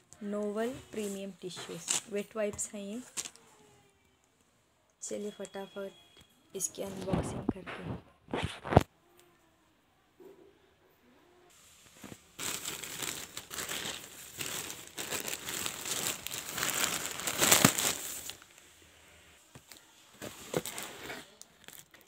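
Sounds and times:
plastic mailer bag tearing: 12.0 - 18.5, 19.7 - 22.0.

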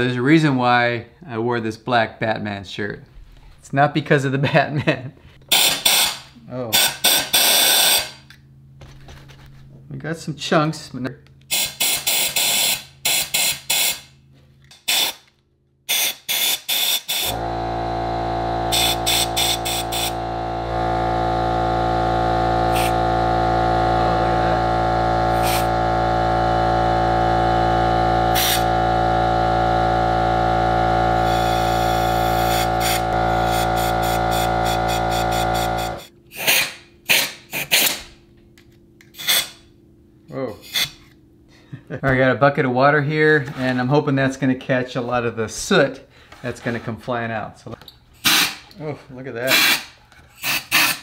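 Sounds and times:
air compressor running: 5.5 - 8.2, 11.5 - 14.0, 14.9 - 15.2, 15.9 - 37.9, 48.2 - 48.8, 49.5 - 51.0
compressed air blasts: 18.7 - 20.2, 22.6 - 23.1, 25.3 - 25.8, 28.3 - 28.7, 31.2 - 37.9, 48.2 - 48.6.

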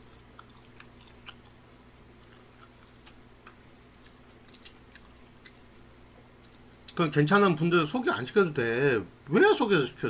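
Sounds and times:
person chewing: 0.0 - 7.0
steady low hum: 0.0 - 10.0.

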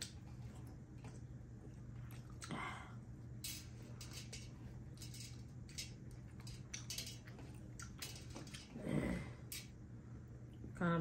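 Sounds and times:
wet chewing: 0.0 - 2.6, 6.0 - 8.8.

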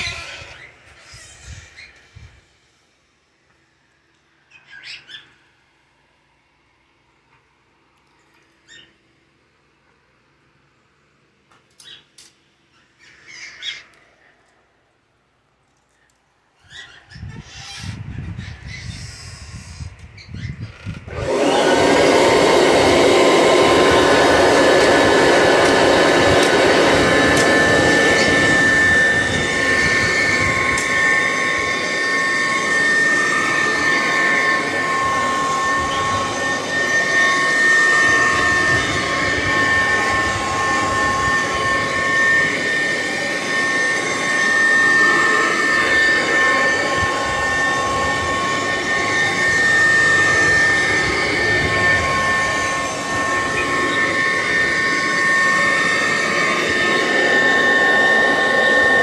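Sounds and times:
vacuum cleaner running over carpet: 0.0 - 1.3, 20.7 - 59.0
high motor and fan whine: 0.0 - 3.7, 16.7 - 59.0.

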